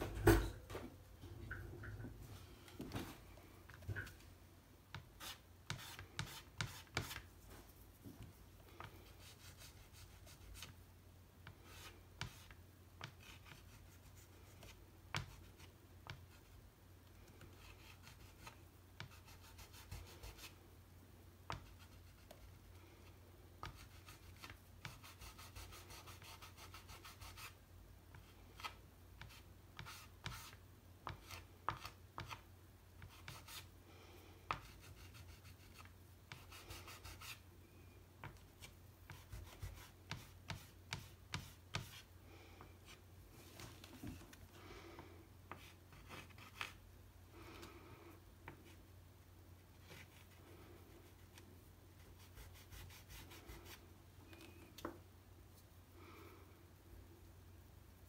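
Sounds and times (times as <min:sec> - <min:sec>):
low steady hum: 0:00.0 - 0:58.0
pastel stick scratching paper: 0:05.0 - 0:07.3.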